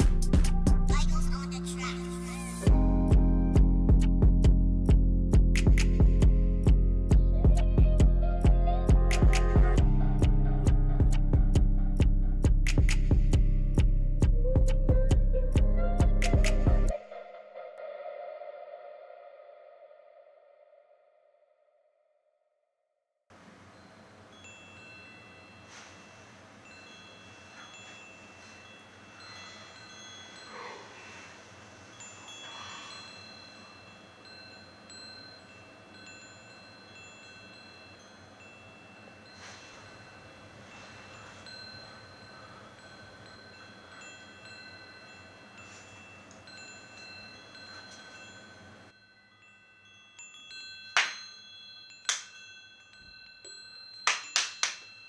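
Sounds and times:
wind chimes tinkling: 0:23.5 - 0:55.0.

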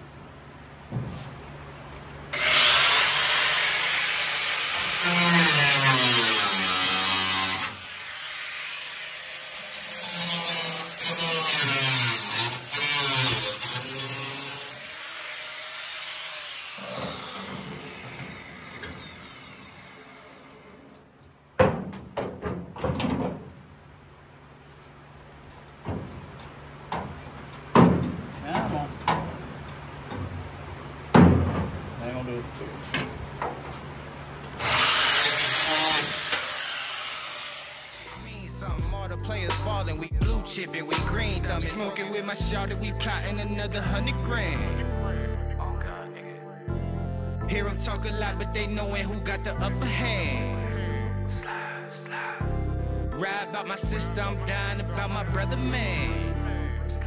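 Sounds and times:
angle grinder grinding steel: 0:02.3 - 0:20.9, 0:34.6 - 0:38.5
sharp knocks: 0:21.6 - 0:23.5.

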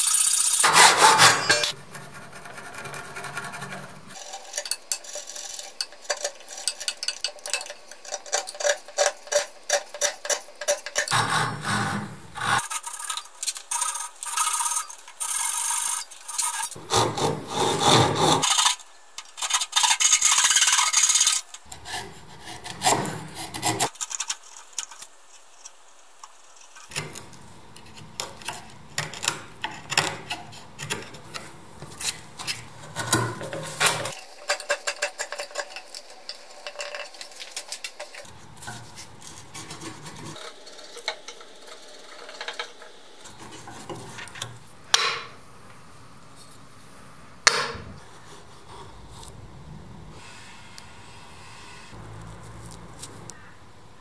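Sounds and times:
handsaw cutting wood: 0:00.6 - 0:01.7, 0:11.1 - 0:12.8, 0:16.8 - 0:18.6, 0:21.7 - 0:23.9
chisel scraping wood: 0:00.6 - 0:07.1, 0:08.9 - 0:13.1, 0:15.5 - 0:18.7, 0:21.2 - 0:23.9, 0:38.2 - 0:40.4.

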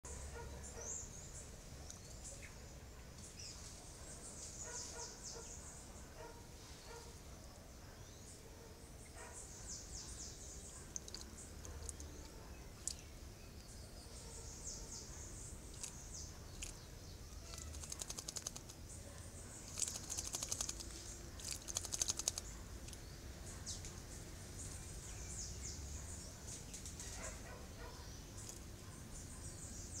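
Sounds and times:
faint high chirps: 0:09.0 - 0:24.0
bird splashing in water: 0:19.7 - 0:22.4.

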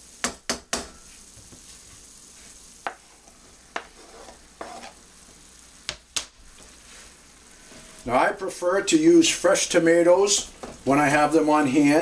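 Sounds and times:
vegetables sizzling in a skillet: 0:00.0 - 0:12.0
sharp knocks on pan: 0:00.2 - 0:01.0.

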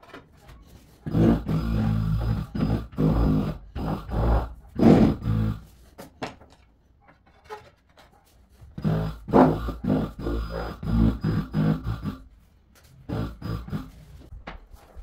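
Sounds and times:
tile vibrator buzzing: 0:01.0 - 0:05.9, 0:08.8 - 0:12.3, 0:13.0 - 0:14.4.

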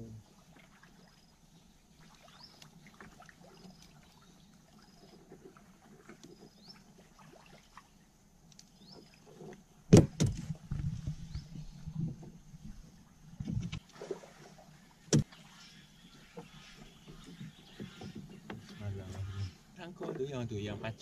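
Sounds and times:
knock on fibreglass boat: 0:09.9 - 0:10.5.

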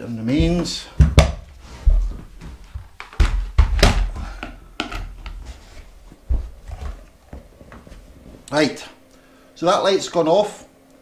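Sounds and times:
dull thumps and knocks: 0:00.3 - 0:08.4.

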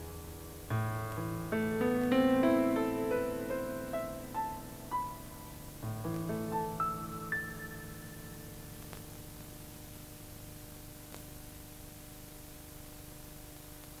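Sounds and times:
steady hiss and hum: 0:00.0 - 0:14.0
high music note: 0:00.8 - 0:08.8.

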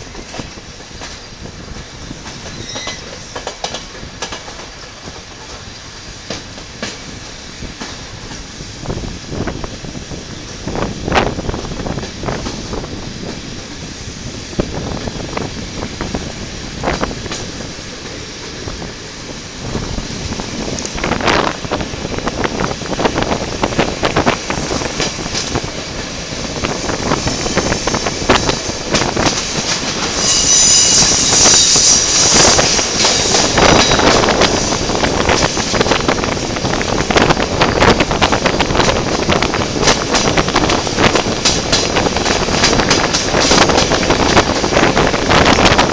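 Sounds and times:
train wheels clattering over rail joints: 0:00.0 - 0:08.7, 0:15.0 - 0:45.9
high wheel squeal: 0:02.5 - 0:03.4, 0:30.0 - 0:34.2.

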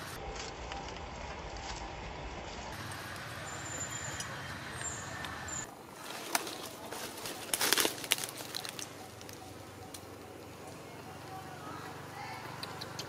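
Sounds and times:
dry leaves rustling and crackling: 0:00.0 - 0:04.2, 0:05.7 - 0:11.6.

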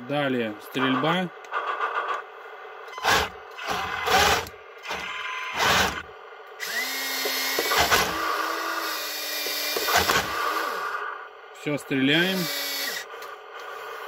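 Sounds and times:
small electric motor whirring: 0:02.9 - 0:11.2, 0:12.2 - 0:14.0.

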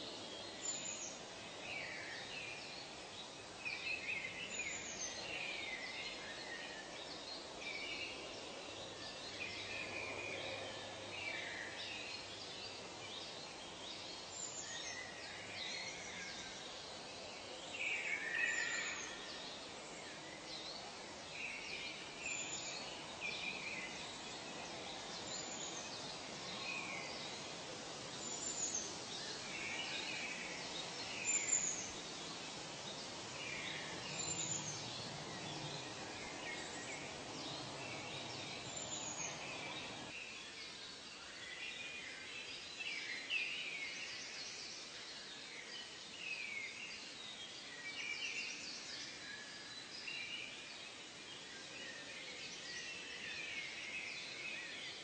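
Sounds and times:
background hiss: 0:00.0 - 0:55.0
birds chirping and calling: 0:33.0 - 0:40.1.

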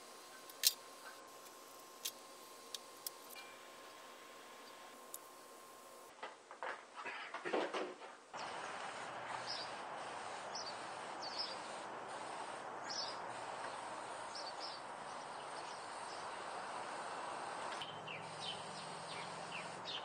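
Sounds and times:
outdoor background hiss: 0:00.0 - 0:20.0
bird chirps: 0:17.7 - 0:20.0.

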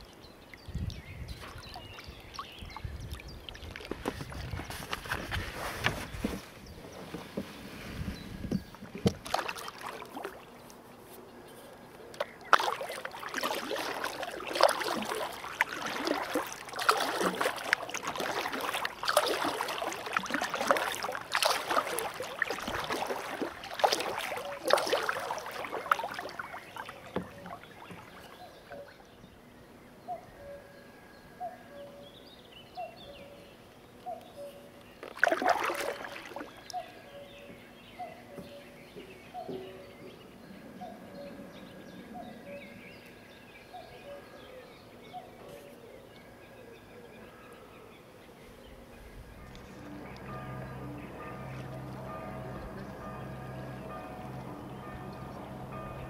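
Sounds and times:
paddle splashing in water: 0:01.3 - 0:10.7, 0:12.2 - 0:29.1, 0:35.0 - 0:37.0.

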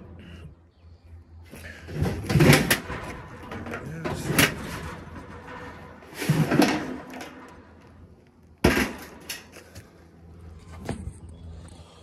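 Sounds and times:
metal scrape: 0:01.7 - 0:08.1
sheet metal knocks and clanks: 0:01.9 - 0:07.9.

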